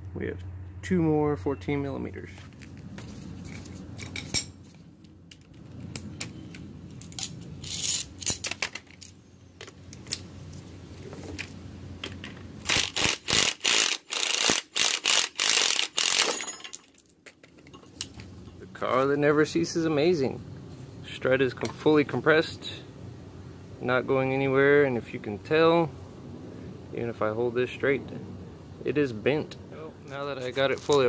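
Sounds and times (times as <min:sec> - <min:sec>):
impact wrench bursts: 0:12.6 - 0:16.5.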